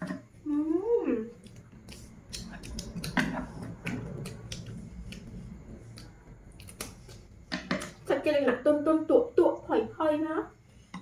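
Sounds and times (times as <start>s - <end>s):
chopsticks clicking: 1.4s - 5.3s, 5.9s - 7.9s
people chewing and smacking: 1.4s - 7.9s.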